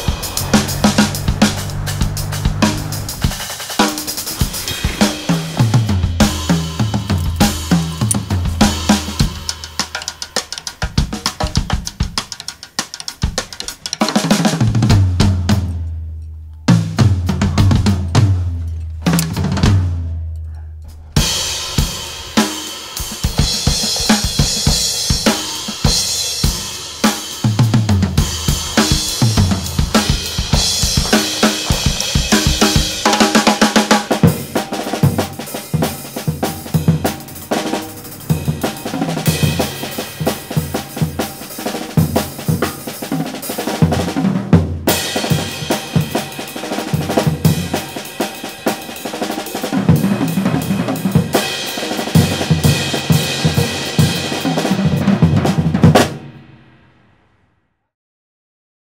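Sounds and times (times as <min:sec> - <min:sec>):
drum kit grooves: 0:00.0 - 0:15.9, 0:16.7 - 0:20.3, 0:20.9 - 0:56.4.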